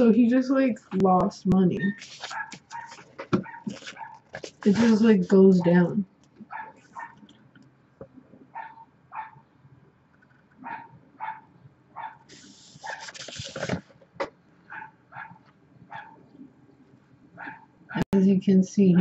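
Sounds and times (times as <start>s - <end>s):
book page turning: 2.0s - 5.2s, 12.3s - 14.0s
dog barking: 2.3s - 4.2s, 6.5s - 7.2s, 8.6s - 9.4s, 10.6s - 13.0s, 14.7s - 16.2s, 17.4s - 18.0s.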